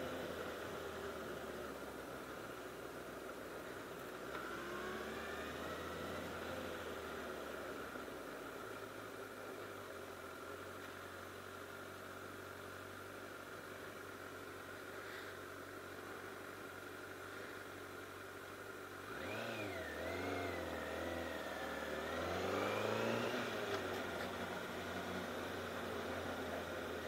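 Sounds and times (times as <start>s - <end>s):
motorcycle engine revving: 4.3s - 7.5s, 19.0s - 27.0s.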